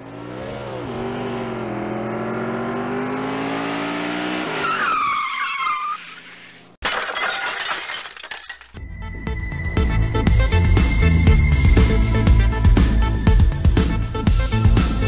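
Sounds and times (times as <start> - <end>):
car engine revving: 0.0 - 4.7
tires screeching: 0.0 - 6.8.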